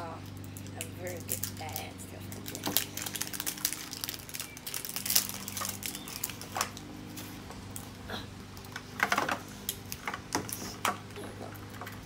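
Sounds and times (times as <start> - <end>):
steady low hum: 0.0 - 12.0
plastic wrapping crinkling and tearing: 0.2 - 7.9.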